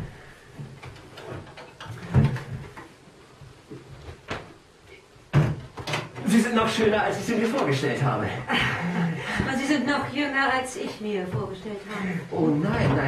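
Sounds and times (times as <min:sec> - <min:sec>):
wooden knocks and thumps: 0:00.0 - 0:04.6, 0:05.3 - 0:06.3, 0:10.8 - 0:11.6, 0:12.6 - 0:13.0.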